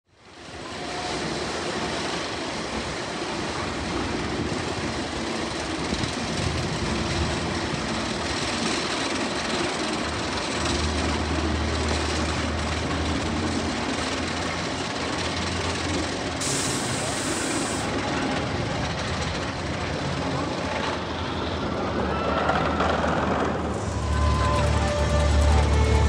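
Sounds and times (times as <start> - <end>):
roller coaster rumbling on track: 0.3 - 26.0
low hum: 23.6 - 26.0.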